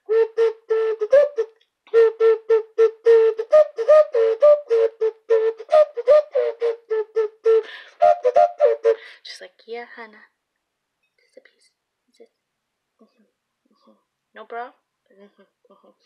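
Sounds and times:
breathy toy wind instrument tooting: 0.0 - 9.0.

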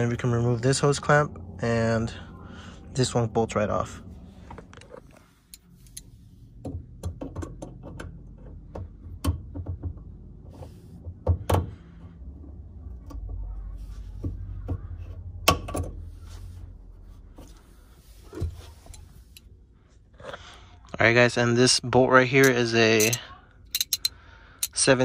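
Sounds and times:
pliers clicking on metal clamp: 22.4 - 24.8.

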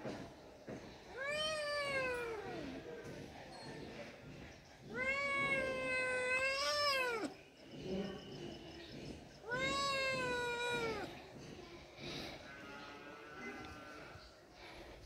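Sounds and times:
cat meowing: 1.1 - 2.6, 4.9 - 7.3, 9.4 - 11.1.

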